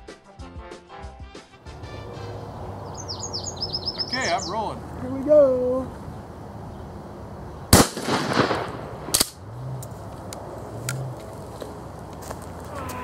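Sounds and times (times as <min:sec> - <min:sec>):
shotgun firing with echo: 0:07.7 - 0:09.4
sharp crack: 0:07.7 - 0:12.8
faint clicks: 0:09.2 - 0:12.2.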